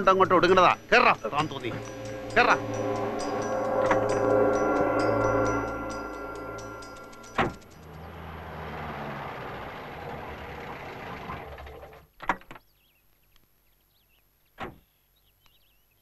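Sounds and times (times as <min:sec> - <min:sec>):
car engine and tyres driving: 0:05.8 - 0:12.0.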